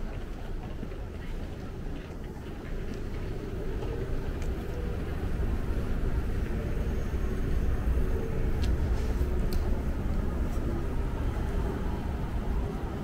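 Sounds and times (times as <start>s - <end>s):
street traffic rumble: 0.0s - 13.0s
faint clicks: 8.6s - 10.2s.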